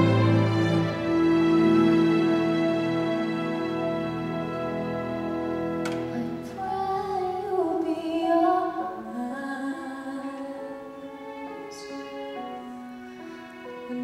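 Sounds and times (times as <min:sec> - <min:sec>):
orchestra sustained chords: 0:00.0 - 0:07.2
woman singing through microphone: 0:06.1 - 0:11.0.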